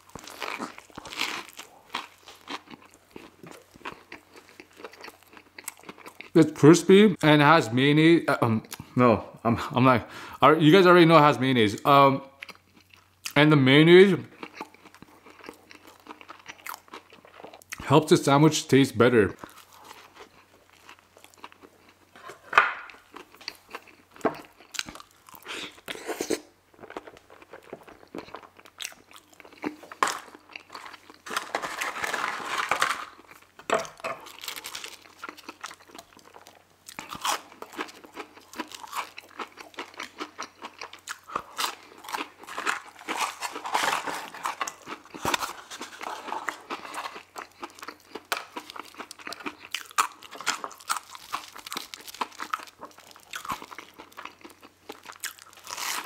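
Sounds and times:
crunching fried food: 0:00.0 - 0:06.4, 0:14.3 - 0:17.9, 0:19.4 - 0:22.2, 0:22.8 - 0:56.0.

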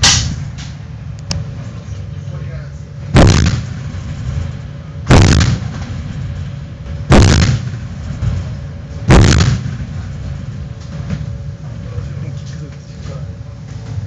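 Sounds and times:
naval gun blasts: 0:00.0 - 0:00.5, 0:03.1 - 0:04.2, 0:05.0 - 0:06.0, 0:07.1 - 0:08.0, 0:09.1 - 0:10.0
low rumble: 0:00.0 - 0:12.5.

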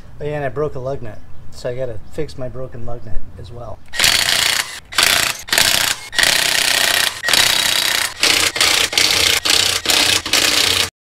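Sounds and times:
impact wrench hammering: 0:04.0 - 0:10.9.

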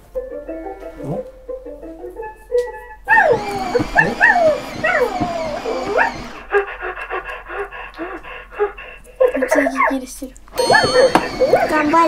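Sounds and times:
toy puppy electronic yelps: 0:03.1 - 0:06.5, 0:10.6 - 0:12.0
toy puppy panting: 0:03.3 - 0:12.0
people talking: 0:09.3 - 0:12.0.

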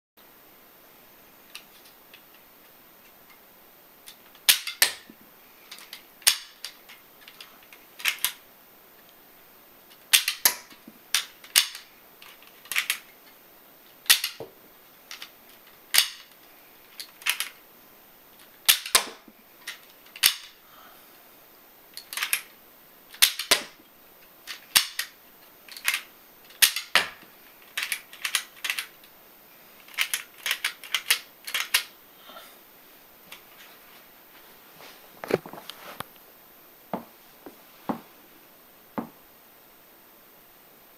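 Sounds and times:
toy gun plastic snaps: 0:08.0 - 0:08.4, 0:10.1 - 0:11.9, 0:14.1 - 0:14.4, 0:16.0 - 0:16.2, 0:17.0 - 0:17.5, 0:18.7 - 0:20.5, 0:22.0 - 0:22.5, 0:23.1 - 0:23.7, 0:24.5 - 0:25.1, 0:25.7 - 0:28.9.

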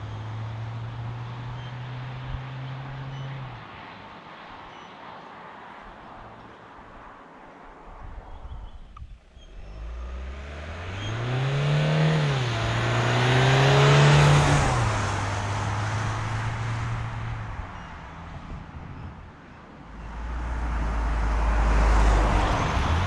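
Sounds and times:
van engine accelerating hard: 0:00.0 - 0:03.4, 0:09.5 - 0:18.6, 0:19.9 - 0:23.0.

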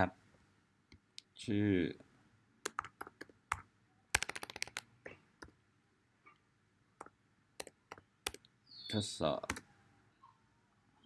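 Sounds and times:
typing on computer keyboard: 0:02.6 - 0:04.8, 0:07.6 - 0:08.4.

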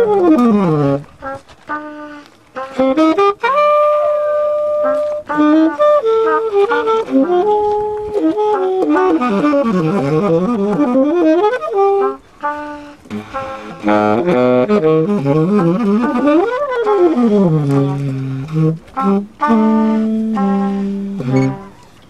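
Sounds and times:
saxophone jazz improvisation: 0:00.0 - 0:22.0.

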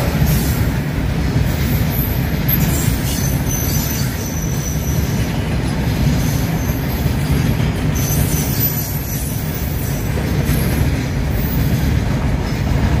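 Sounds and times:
train wheels rumbling on rail: 0:00.0 - 0:13.0
high-pitched wheel squeal: 0:02.6 - 0:05.2, 0:08.0 - 0:10.0.

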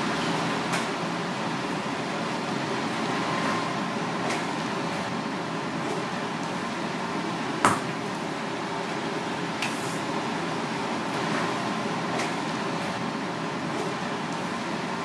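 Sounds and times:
fan-like room noise: 0:00.0 - 0:15.0.

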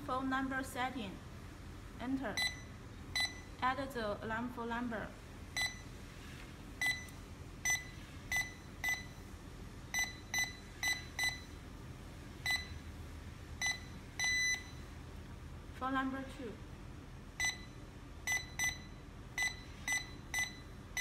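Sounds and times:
keypad beeps: 0:02.4 - 0:03.5, 0:05.6 - 0:05.9, 0:06.8 - 0:09.2, 0:10.0 - 0:11.6, 0:12.4 - 0:12.8, 0:13.6 - 0:14.8, 0:17.4 - 0:21.0.

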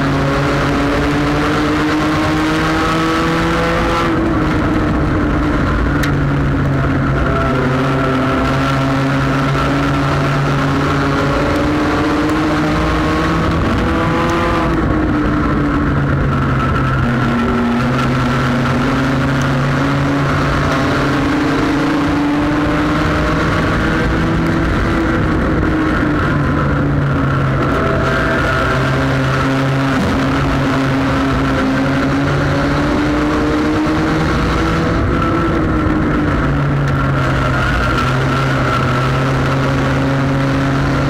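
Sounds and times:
race car engine revving: 0:00.0 - 0:41.0
road and wind noise: 0:00.0 - 0:41.0.

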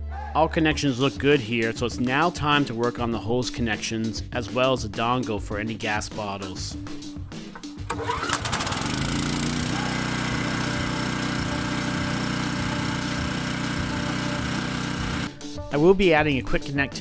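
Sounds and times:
generator engine starting and running: 0:07.5 - 0:15.4.

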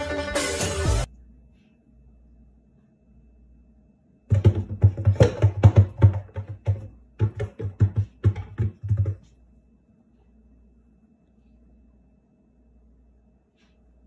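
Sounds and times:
cat paws knocking on wooden door: 0:04.3 - 0:09.3.

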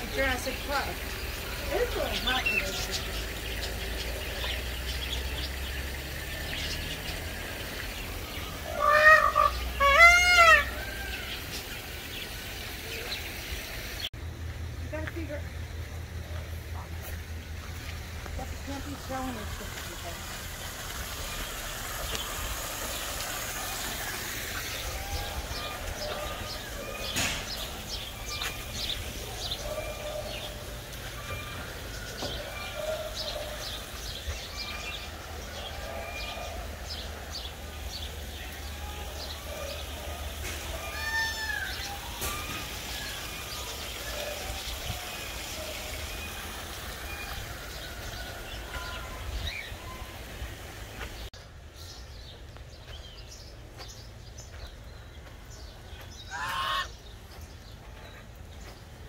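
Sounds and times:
small birds chirping: 0:00.0 - 0:14.1, 0:14.8 - 0:59.0
steady low rumble: 0:13.6 - 0:22.7.

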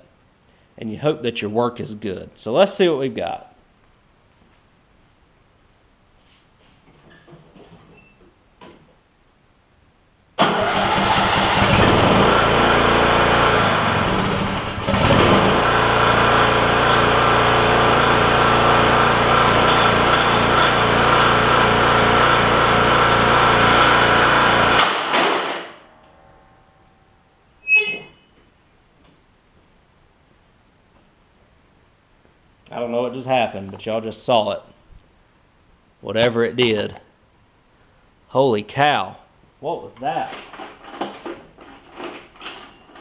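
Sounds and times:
mower engine running loudly: 0:10.4 - 0:25.6.

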